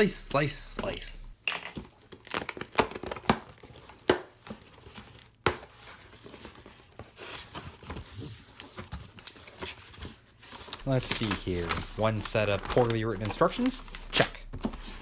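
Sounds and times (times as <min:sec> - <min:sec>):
packing tape tearing: 0:01.0 - 0:05.8, 0:10.7 - 0:14.8
cardboard flaps crackling: 0:06.2 - 0:15.0.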